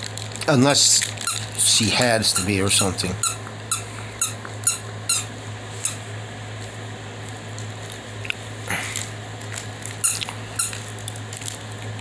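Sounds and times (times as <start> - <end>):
steady low hum: 0.0 - 12.0
puppy chewing: 7.3 - 12.0.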